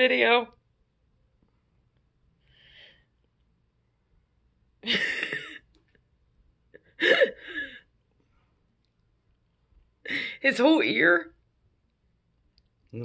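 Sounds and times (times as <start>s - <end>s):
faint breath: 2.4s - 3.2s.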